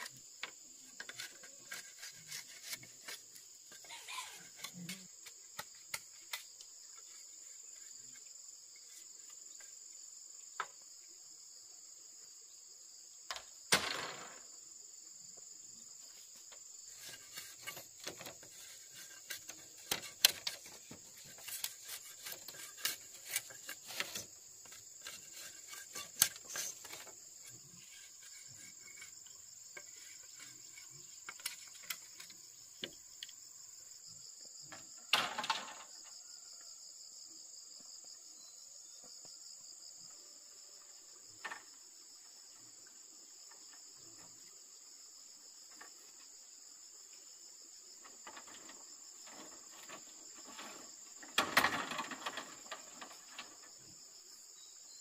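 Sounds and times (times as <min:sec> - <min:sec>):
insects droning: 0:00.0 - 0:55.0.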